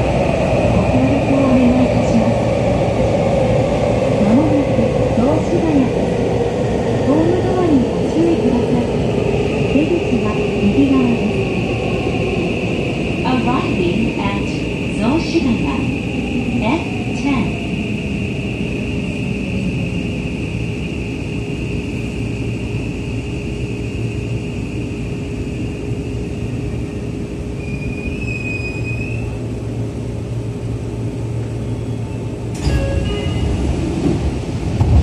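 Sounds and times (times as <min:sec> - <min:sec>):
high train whine: 0:00.0 - 0:35.0
train running rumble: 0:00.0 - 0:35.0
train doors opening clunk: 0:32.5 - 0:35.0.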